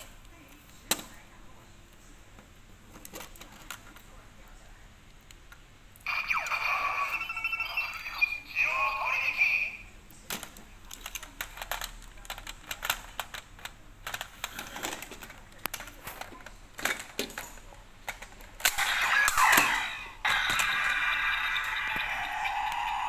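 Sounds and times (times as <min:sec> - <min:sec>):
plastic toys clicking and clacking: 0:02.4 - 0:04.2, 0:10.2 - 0:23.0
loud burst of toy sound: 0:18.7 - 0:23.0.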